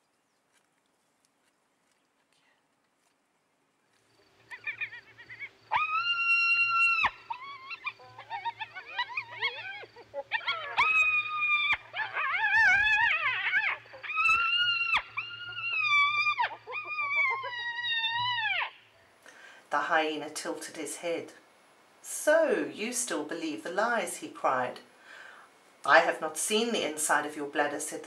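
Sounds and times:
faint low hum: 0:00.0 - 0:28.0
hyena whining calls: 0:04.4 - 0:19.2.

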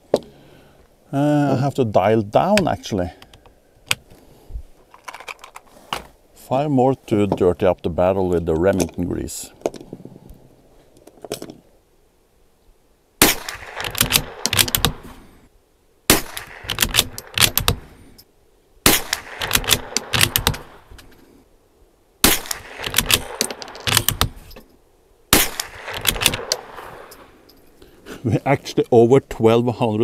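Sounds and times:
rifle bolt clicks: 0:13.2 - 0:15.0, 0:16.2 - 0:17.9, 0:18.9 - 0:21.2, 0:22.3 - 0:24.7, 0:25.4 - 0:27.2
rifle shots: 0:13.2 - 0:15.1, 0:16.1 - 0:17.9, 0:18.8 - 0:20.9, 0:22.2 - 0:24.5, 0:25.3 - 0:27.3.

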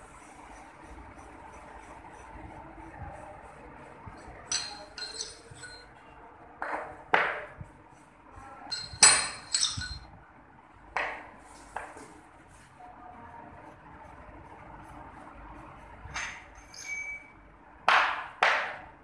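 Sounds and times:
metal knocks and clinks: 0:04.4 - 0:06.0, 0:08.7 - 0:10.1, 0:16.1 - 0:17.4.

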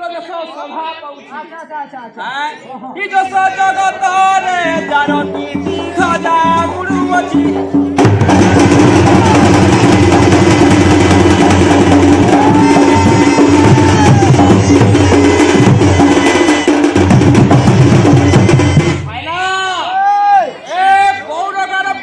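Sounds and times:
drum beaten in fast rhythm: 0:03.9 - 0:19.5
wind pipe playing held notes: 0:12.3 - 0:16.7.

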